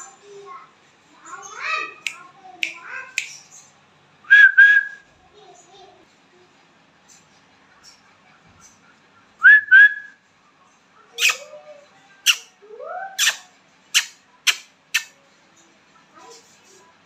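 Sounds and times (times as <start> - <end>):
parakeet short sharp calls: 11.2 - 11.5, 13.2 - 15.1.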